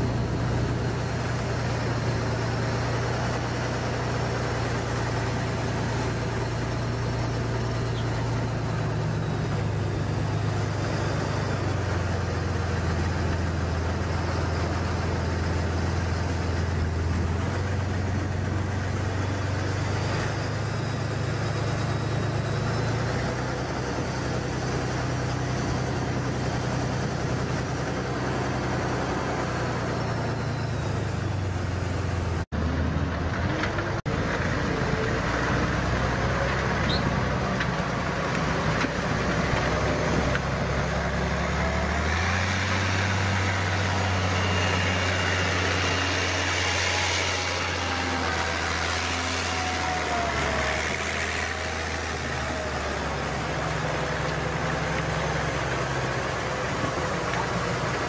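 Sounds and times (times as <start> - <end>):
truck engine running: 0.0 - 58.0.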